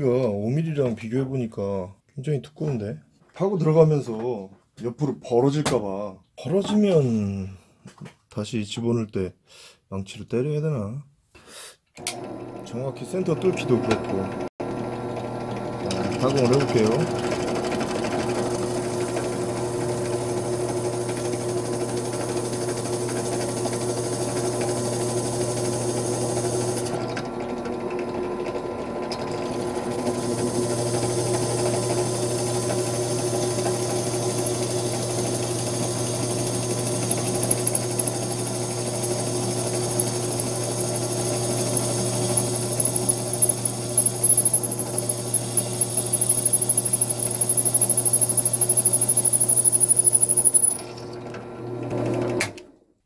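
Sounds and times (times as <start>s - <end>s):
drill press boring into brass: 12.0s - 52.5s.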